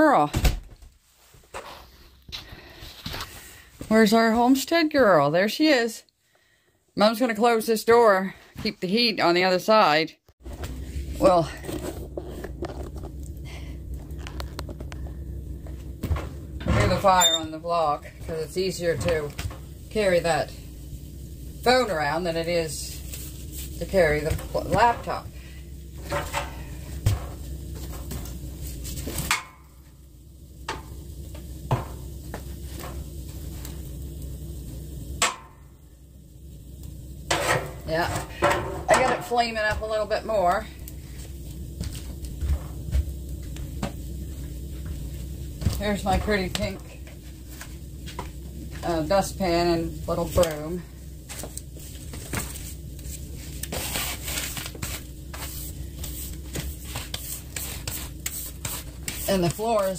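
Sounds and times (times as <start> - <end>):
broom sweeping floor: 1.0 - 4.3, 15.0 - 34.9, 37.3 - 59.9
low steady rumble: 10.4 - 59.9.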